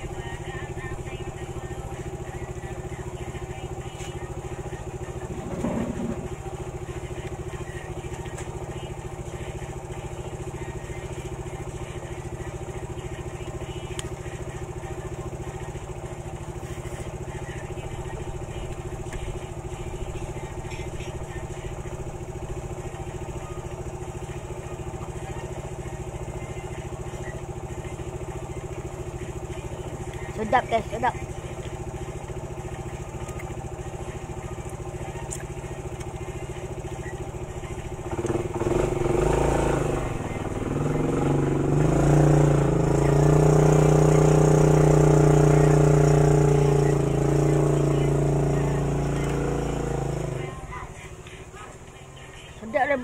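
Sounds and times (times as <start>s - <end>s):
motor drone: 0.0s - 52.5s.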